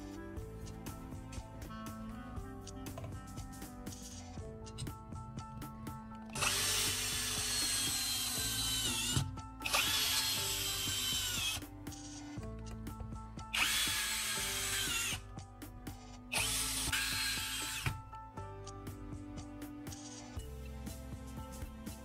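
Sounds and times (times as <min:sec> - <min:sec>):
power drill driving screws: 0:06.3 - 0:11.7, 0:13.5 - 0:15.2, 0:16.3 - 0:18.0.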